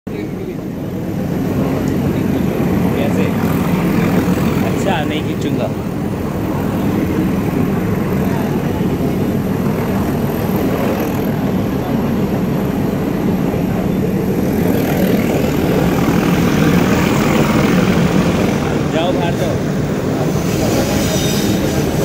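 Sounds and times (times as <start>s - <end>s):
train carriages rumbling on track: 14.6s - 22.0s.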